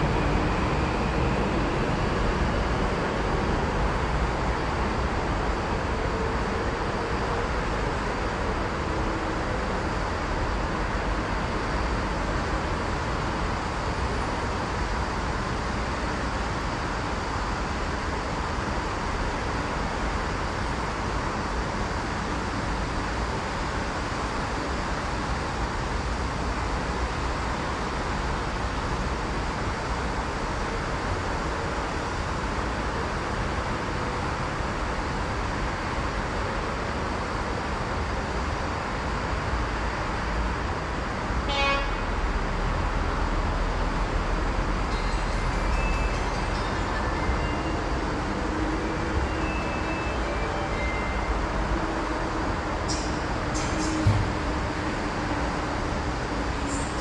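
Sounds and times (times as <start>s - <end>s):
road traffic noise: 39.2s - 57.0s.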